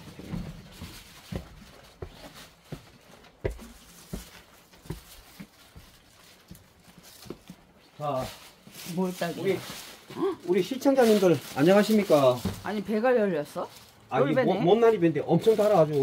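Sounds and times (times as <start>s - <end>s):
footsteps on steps and dirt: 0.0s - 8.7s.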